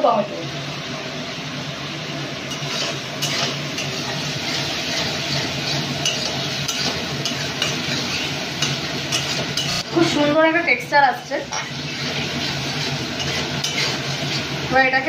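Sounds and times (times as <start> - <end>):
paste sizzling in oil: 2.2 - 15.0
spatula scraping metal pan: 2.5 - 9.8, 11.5 - 14.6.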